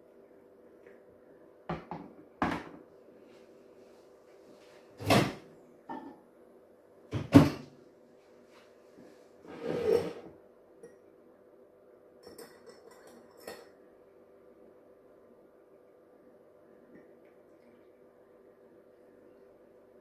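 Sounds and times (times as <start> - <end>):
light clinks: 12.2 - 13.8.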